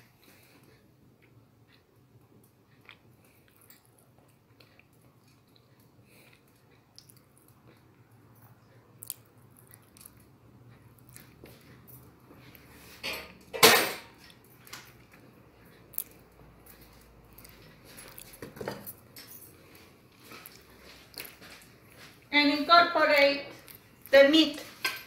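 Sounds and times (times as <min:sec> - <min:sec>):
kitchen objects clattering: 0:12.9 - 0:14.9, 0:18.3 - 0:19.6.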